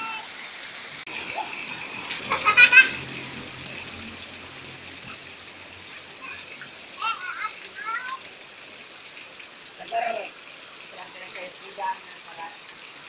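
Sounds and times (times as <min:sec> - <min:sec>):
steady rain falling: 0:00.0 - 0:13.0.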